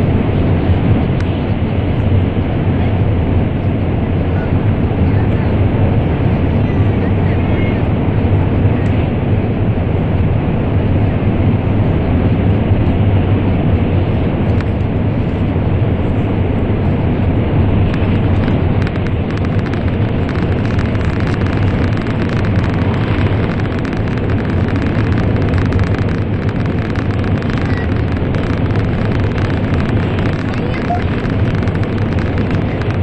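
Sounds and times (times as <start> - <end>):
train rumbling through tunnel: 0.0 - 33.0
faint crackling ticks: 17.9 - 33.0.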